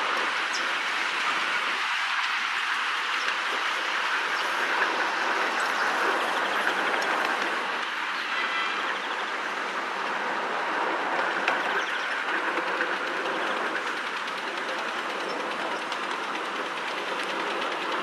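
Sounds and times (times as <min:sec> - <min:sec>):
train wheels clicking on rail joints: 0:10.8 - 0:18.0.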